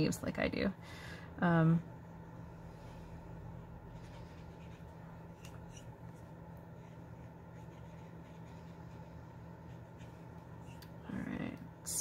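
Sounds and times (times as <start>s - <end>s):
low hum: 0.2s - 12.0s
marker scratching on card: 3.9s - 6.2s, 6.8s - 10.8s.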